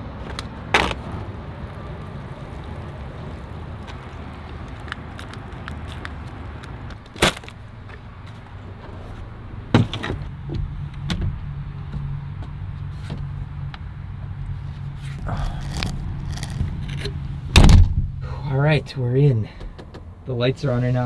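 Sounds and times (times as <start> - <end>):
sharp knocks on truck: 17.6 - 18.1.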